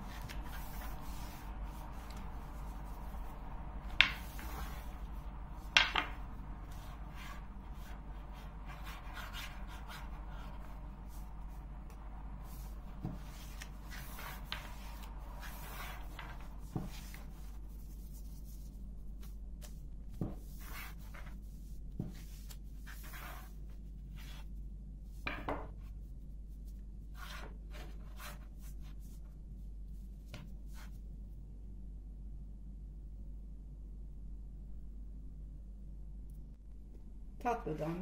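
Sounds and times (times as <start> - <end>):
rolling pin swishing dough: 0.0 - 24.5.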